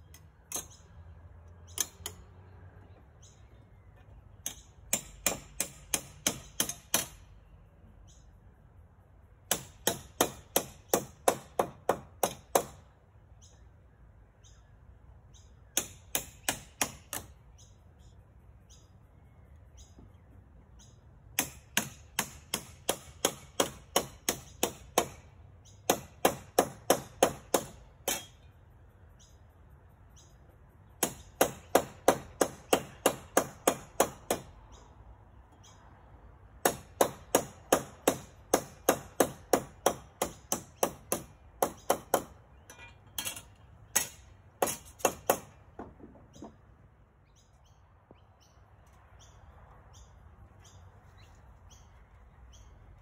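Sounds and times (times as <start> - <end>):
hammer striking nails into wood: 4.4 - 7.2, 9.5 - 12.9, 15.8 - 17.4, 21.4 - 25.2, 25.8 - 28.4, 31.0 - 34.5, 36.6 - 42.4, 43.9 - 46.6.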